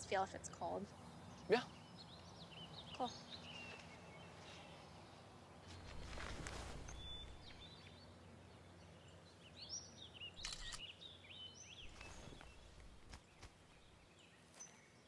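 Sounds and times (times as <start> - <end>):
faint soft rustles: 5.6 - 7.7, 11.8 - 13.9
high bird chirps: 6.9 - 8.0, 10.2 - 12.8.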